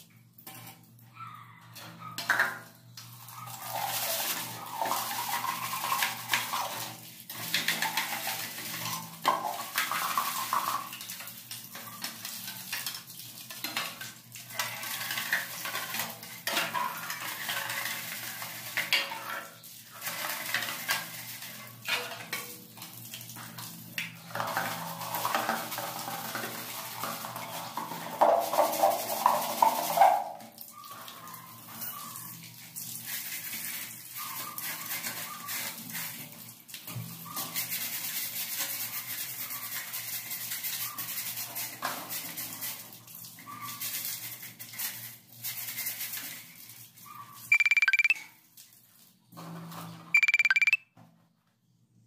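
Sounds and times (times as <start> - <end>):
brush scrubbing plastic: 3.4 - 6.8, 24.5 - 30.3.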